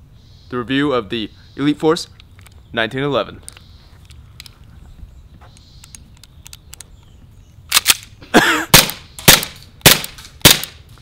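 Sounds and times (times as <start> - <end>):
airsoft pistol shots: 8.7 - 10.8.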